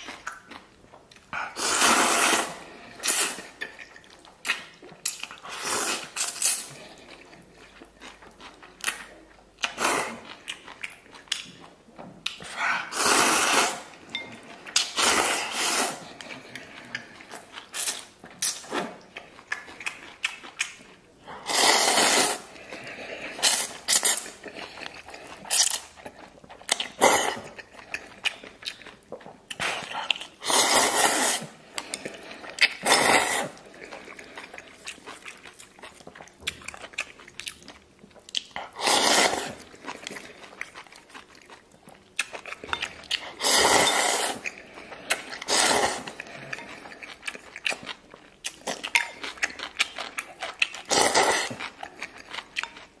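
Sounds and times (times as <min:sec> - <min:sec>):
chewing and mouth sounds: 0:00.0 - 0:53.0
person slurping noodles: 0:01.4 - 0:03.6, 0:05.4 - 0:06.8, 0:12.5 - 0:14.0, 0:14.8 - 0:18.0, 0:21.4 - 0:25.8, 0:29.6 - 0:34.5, 0:38.7 - 0:39.6, 0:43.3 - 0:44.5, 0:45.1 - 0:46.6, 0:50.8 - 0:51.7.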